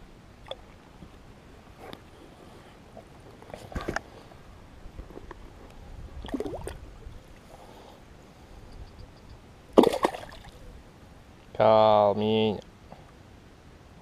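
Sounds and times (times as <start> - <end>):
fish splashing into water: 9.8 - 10.6.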